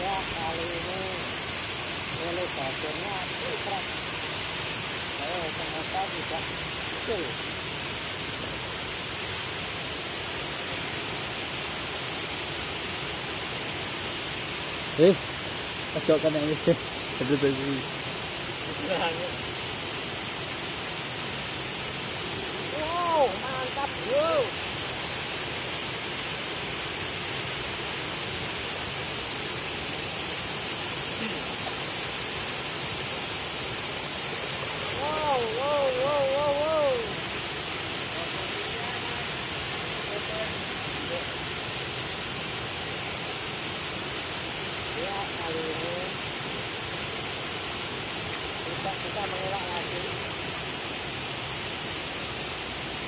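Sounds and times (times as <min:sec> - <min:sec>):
water rushing over a spillway: 0:00.0 - 0:53.0.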